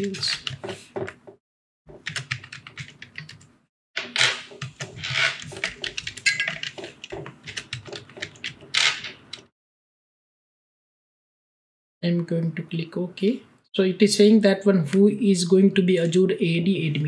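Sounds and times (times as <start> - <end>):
computer keyboard typing: 0.0 - 1.2, 1.9 - 3.5, 4.6 - 9.5.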